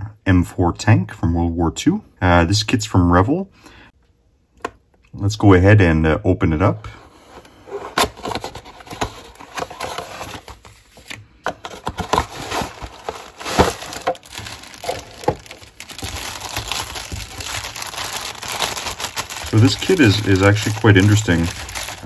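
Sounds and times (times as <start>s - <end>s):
cardboard box rustling and crinkling: 7.6s - 22.0s.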